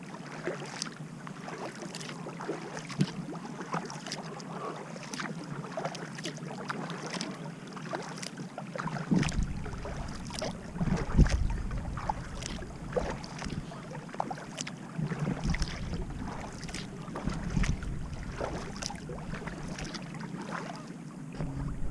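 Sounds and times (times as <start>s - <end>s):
water splashes and drips: 0.0s - 21.5s
paddle strokes in water: 0.0s - 21.9s
wind rumble on microphone: 9.1s - 13.8s, 15.0s - 20.0s, 21.3s - 21.9s.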